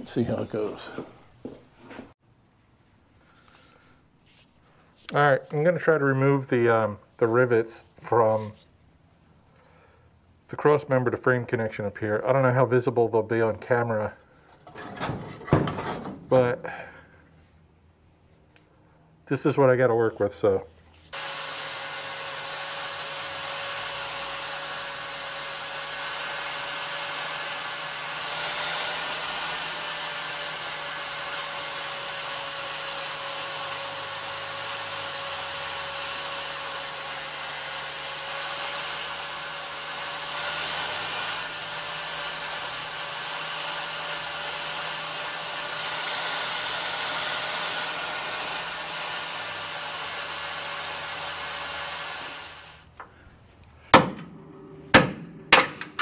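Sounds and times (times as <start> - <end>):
power tool cutting steel: 21.1 - 52.9.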